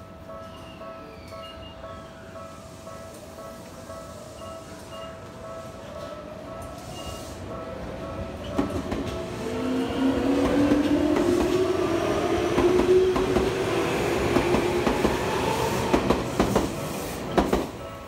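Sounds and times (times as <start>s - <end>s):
train wheels clacking over rail joints: 15.8s - 17.8s.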